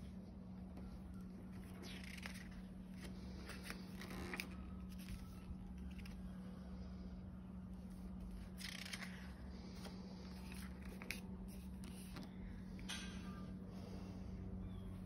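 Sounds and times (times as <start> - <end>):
steady low hum: 0.0 - 15.0
paper pages rustling: 1.2 - 6.5, 7.8 - 12.4.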